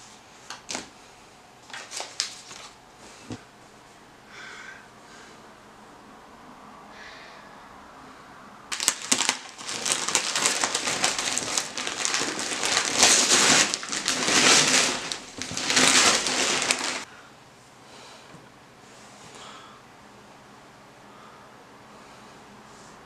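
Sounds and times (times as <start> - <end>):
wrapping paper ripping and crumpling: 1.6 - 2.8, 8.7 - 17.1.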